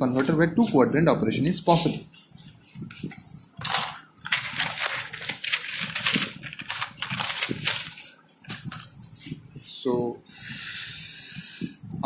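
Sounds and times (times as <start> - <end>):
paper rustling: 1.7 - 9.6.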